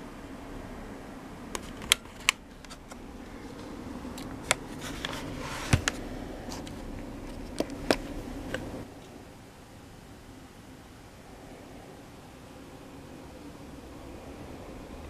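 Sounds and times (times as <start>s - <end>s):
laptop plastic clicks and knocks: 4.2s - 6.0s.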